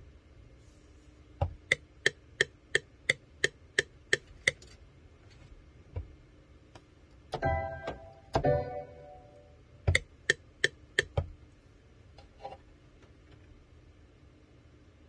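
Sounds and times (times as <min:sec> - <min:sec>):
sharp evenly spaced clicks: 0:01.6 - 0:04.6, 0:09.9 - 0:11.2.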